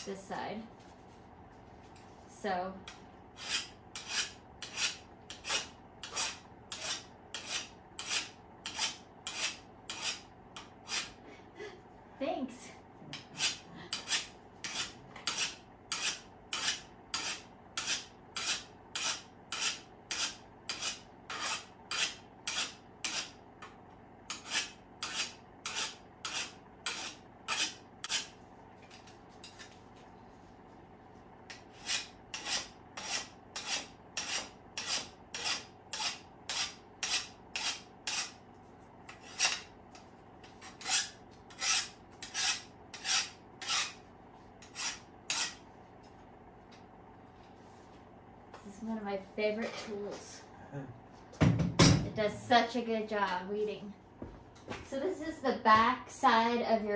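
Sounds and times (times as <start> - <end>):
hand file rasping on steel: 3.4 - 11.2, 13.1 - 23.4, 24.3 - 28.3, 31.5 - 38.4, 39.1 - 39.7, 40.4 - 44.0, 44.6 - 45.6.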